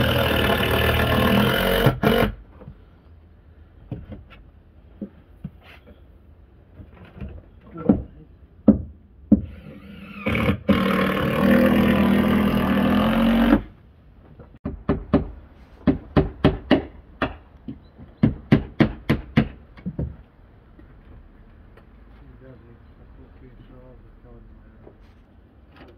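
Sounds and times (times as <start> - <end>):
power tool running: 0.0 - 2.4, 9.5 - 13.7
hammer nailing boards: 14.6 - 20.2.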